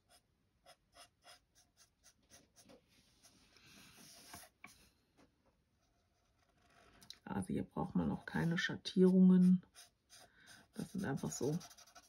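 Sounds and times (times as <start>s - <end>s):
marker scratching on paper: 0.0s - 2.8s, 4.0s - 4.6s, 8.5s - 12.0s.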